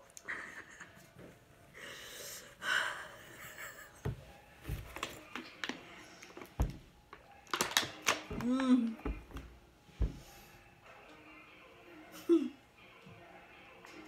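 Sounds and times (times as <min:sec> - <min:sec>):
woman breathing hard: 0:01.7 - 0:03.4
plastic bottle crinkling: 0:04.6 - 0:09.4
soft thumps: 0:09.0 - 0:10.4.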